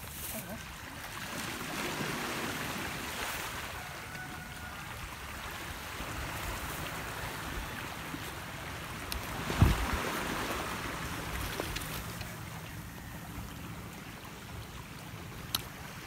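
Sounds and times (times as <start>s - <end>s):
surf washing on pebbles: 0.0s - 12.8s
wind buffeting microphone: 9.3s - 11.7s.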